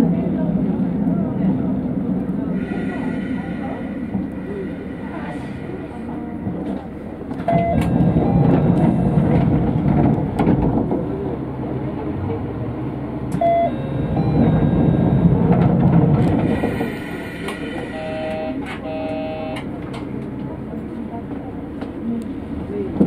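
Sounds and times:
diesel railcar engine running: 0:00.0 - 0:23.0
short beeps: 0:07.5 - 0:08.7, 0:13.4 - 0:15.4, 0:17.9 - 0:19.6.

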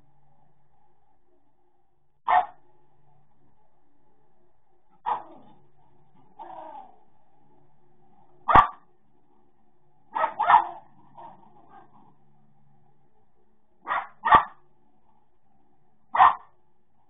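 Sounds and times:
faint steady hum: 0:00.0 - 0:17.0
dog barking: 0:02.3 - 0:02.6, 0:05.0 - 0:05.5, 0:08.4 - 0:08.8, 0:10.1 - 0:12.0, 0:13.8 - 0:14.6, 0:16.1 - 0:16.6.

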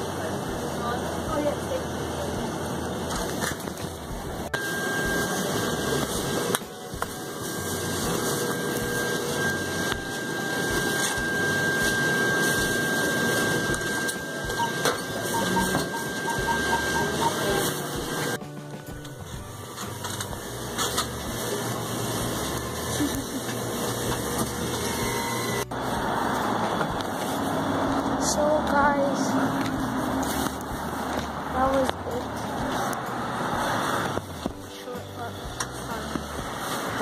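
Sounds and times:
thin steady high tone: 0:04.4 - 0:18.4
short beeps: 0:04.5 - 0:06.2, 0:08.8 - 0:18.4.

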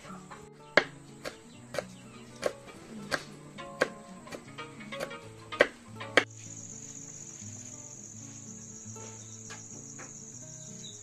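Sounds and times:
cricket trill: 0:00.0 - 0:11.0
soft background music: 0:00.0 - 0:11.0
knife chopping on cutting board: 0:00.8 - 0:04.4.

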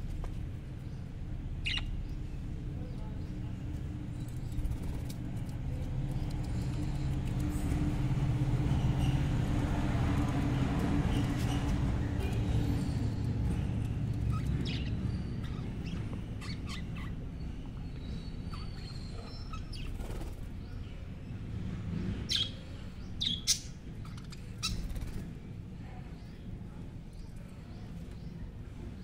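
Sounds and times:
budgerigars chirping: 0:01.6 - 0:02.2.

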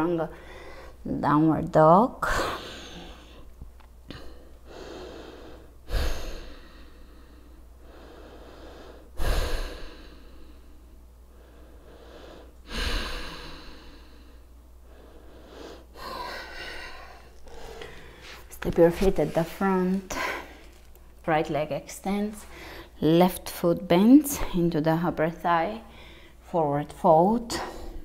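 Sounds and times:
woman breathing deeply: 0:00.3 - 0:01.0, 0:02.3 - 0:03.5, 0:04.1 - 0:18.6, 0:19.6 - 0:20.9, 0:22.4 - 0:23.0, 0:25.9 - 0:26.4, 0:27.5 - 0:28.0.

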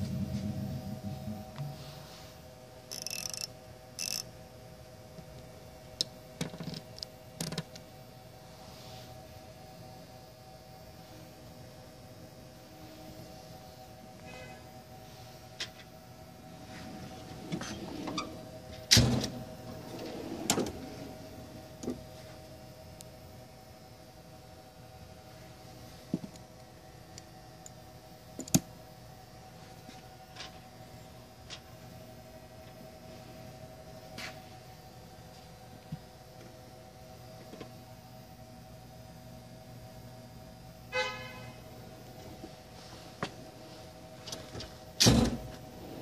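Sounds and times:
ratchet wrench clicking: 0:02.9 - 0:04.3
steel toolbox drawers sliding: 0:19.2 - 0:21.1
drawer banging shut: 0:45.0 - 0:45.5.

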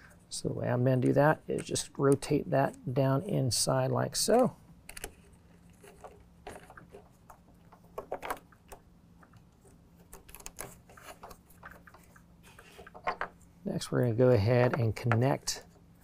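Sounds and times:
clicks and rustles of handling parts: 0:04.3 - 0:13.5.

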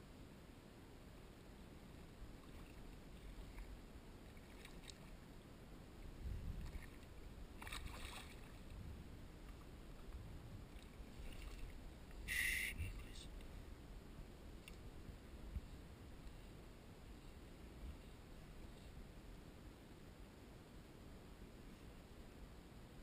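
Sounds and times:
water lapping beside kayak: 0:01.8 - 0:05.3, 0:06.1 - 0:13.8.

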